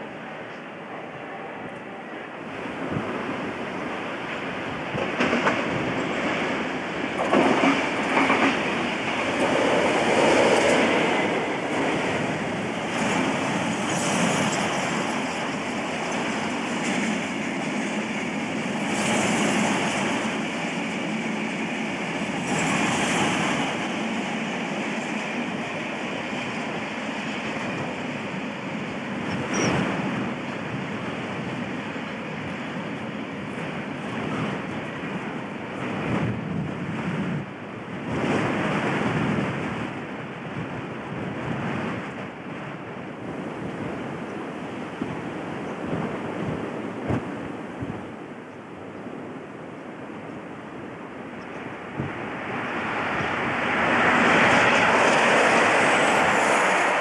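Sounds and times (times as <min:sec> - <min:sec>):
diesel locomotive passing: 0:00.0 - 0:57.0
train wheels clattering over rail joints: 0:04.9 - 0:11.0.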